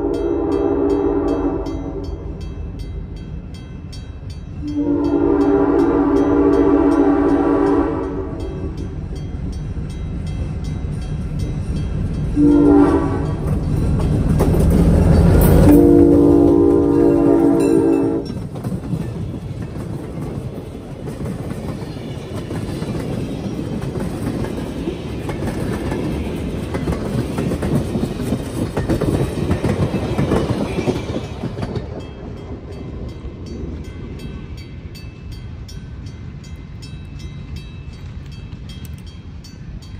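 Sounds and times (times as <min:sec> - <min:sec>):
locomotive horn blasts: 0:00.0 - 0:02.2, 0:04.6 - 0:08.8, 0:12.4 - 0:13.5, 0:15.5 - 0:18.4
locomotive engine rumble: 0:00.0 - 0:39.9.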